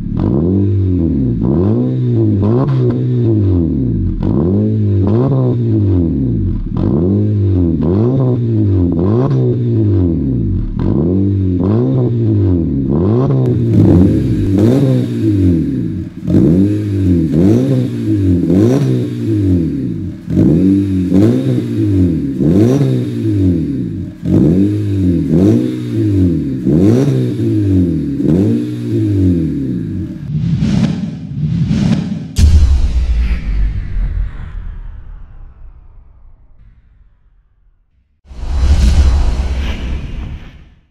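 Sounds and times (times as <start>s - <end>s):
car engine revving: 0.0s - 30.8s.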